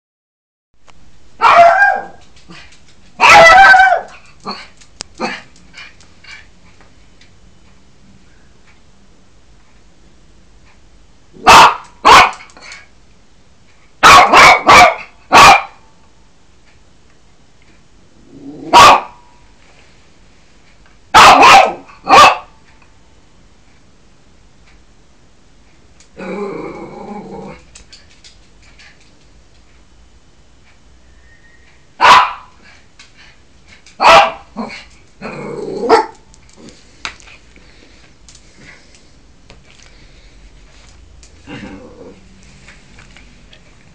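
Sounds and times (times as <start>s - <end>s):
small dog barking: 1.4s - 2.2s, 3.2s - 4.6s, 11.4s - 12.5s, 14.0s - 15.9s, 18.7s - 19.3s, 21.1s - 22.6s, 32.0s - 32.6s, 34.0s - 34.8s, 35.8s - 36.3s.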